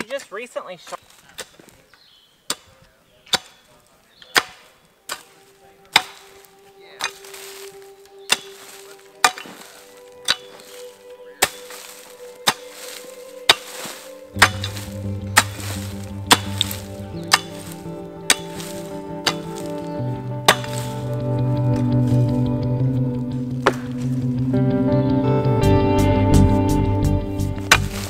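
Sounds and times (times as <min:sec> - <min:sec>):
digging tool chopping soil: 0:00.8 - 0:01.7, 0:02.4 - 0:22.3, 0:23.6 - 0:24.1, 0:27.6 - 0:28.0
background music: 0:04.3 - 0:28.0.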